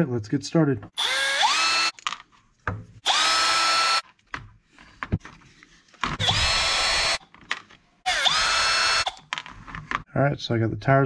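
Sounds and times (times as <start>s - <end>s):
electric screwdriver whine: 1.0s - 1.9s, 3.0s - 4.0s, 6.2s - 7.2s, 8.1s - 9.2s.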